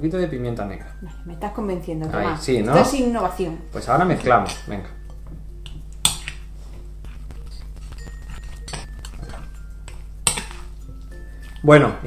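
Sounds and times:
spoon scraping glass bowl: 6.2 - 9.6.

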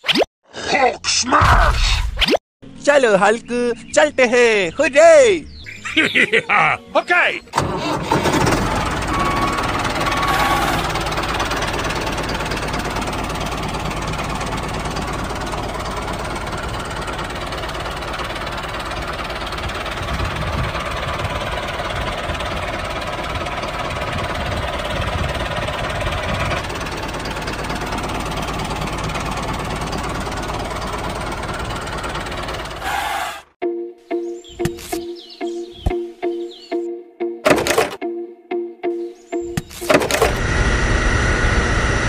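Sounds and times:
tractor engine throbbing: 7.5 - 33.4, 39.4 - 42.0.

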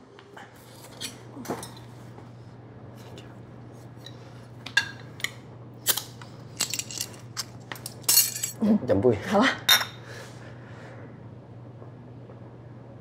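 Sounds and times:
low room hum: 0.0 - 13.0
cutlery and dishes clinking: 6.6 - 8.6.

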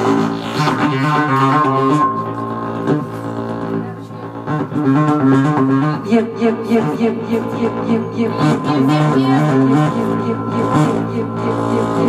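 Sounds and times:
droning buzzing bass tone: 0.0 - 12.0
loud electronic music: 0.0 - 12.0.

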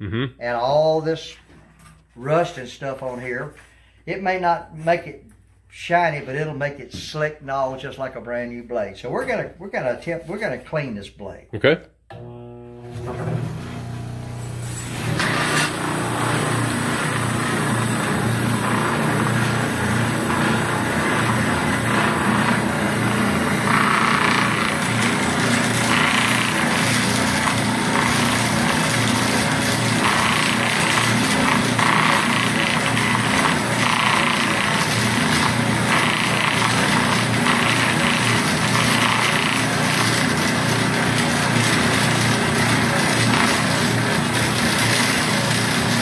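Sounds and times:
electric motor humming: 12.1 - 46.0
wire brush scrubbing metal: 15.1 - 40.2.

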